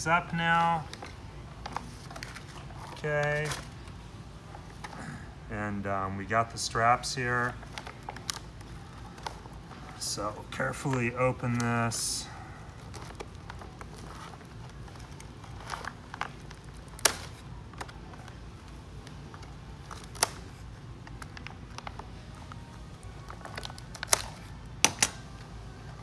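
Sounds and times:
low room hum: 0.0 - 26.0
foil bag crinkling: 12.6 - 22.2.

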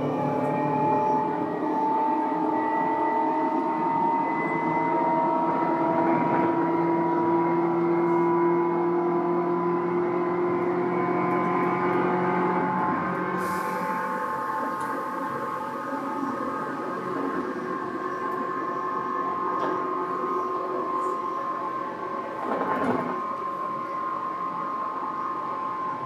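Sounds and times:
train running noise: 0.0 - 26.0.

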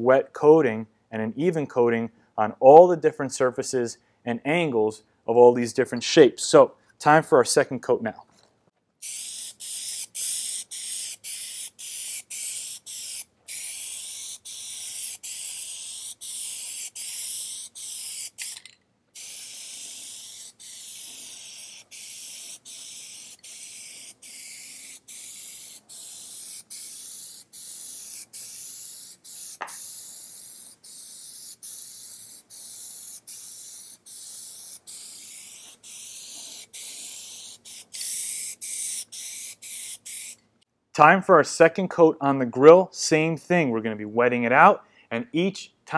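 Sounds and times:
aerosol spray can hissing: 9.0 - 40.4.

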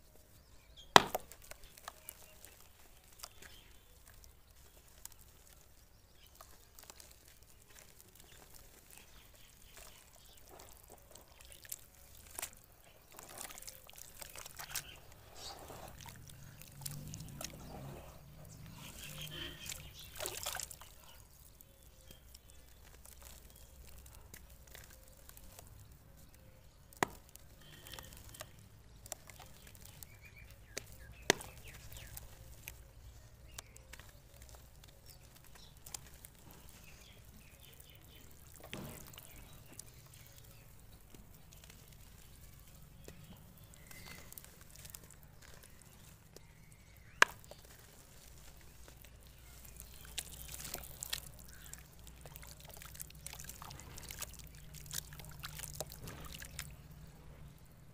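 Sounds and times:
dirt crunching and crackling: 0.0 - 57.9
water sloshing: 1.0 - 26.3, 33.7 - 57.9.

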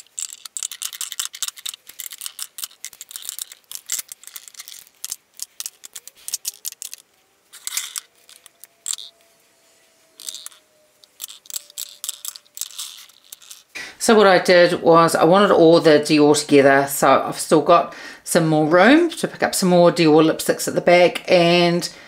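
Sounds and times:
lipstick tubes clicking on plastic: 0.0 - 9.2, 10.2 - 13.7.

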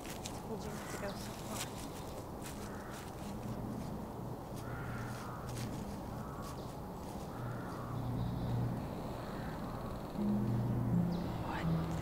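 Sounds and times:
crows cawing: 0.5 - 3.7, 4.5 - 12.0
low steady hum: 3.3 - 12.0.

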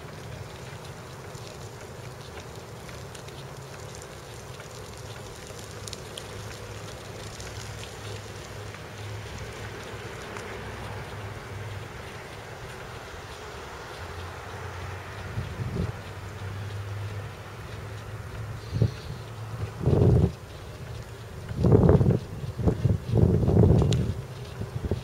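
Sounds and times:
bicycle tyres on asphalt: 0.0 - 25.0
wind on microphone: 15.2 - 16.1, 18.6 - 25.0.

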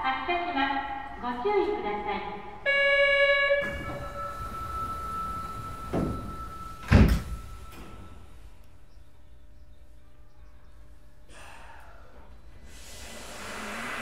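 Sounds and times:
door warning tone: 2.7 - 8.6
train doors shutting thump: 3.6 - 8.4.

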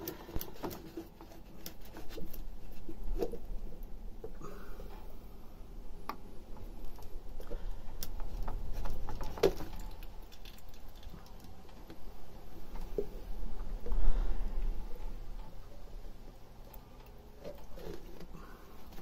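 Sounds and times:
steady low rumble: 12.0 - 16.7.

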